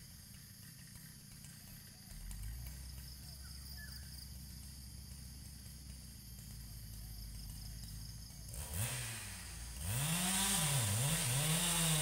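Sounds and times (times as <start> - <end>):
faint chirps: 0.8 - 4.8.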